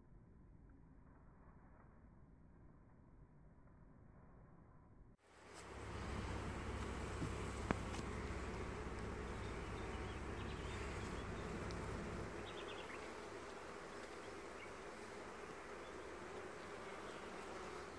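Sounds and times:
honeybees buzzing: 5.3 - 17.9.

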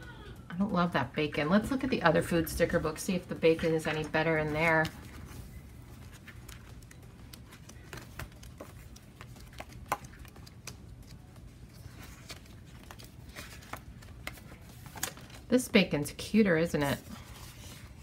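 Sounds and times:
paper rustling: 3.4 - 15.6, 16.8 - 18.0.

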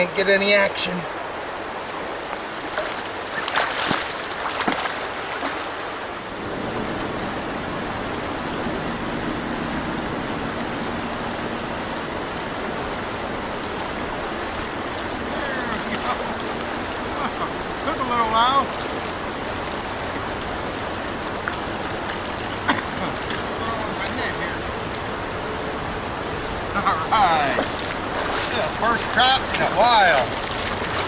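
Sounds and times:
stream rushing over rocks: 0.0 - 31.0.

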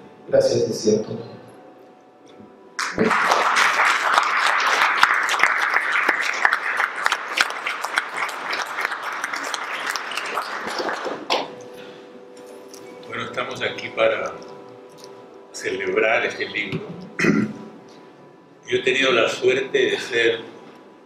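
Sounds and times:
audience applauding: 2.8 - 11.4.

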